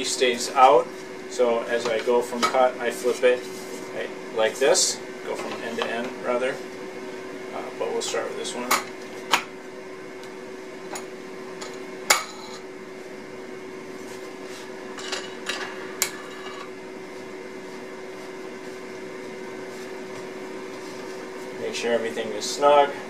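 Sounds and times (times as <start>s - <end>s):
room hum: 0.0s - 23.0s.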